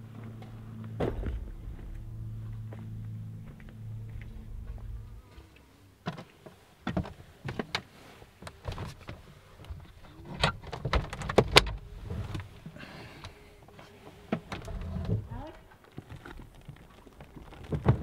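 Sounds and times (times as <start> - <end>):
low rumble: 0.0 - 6.8, 11.6 - 12.6.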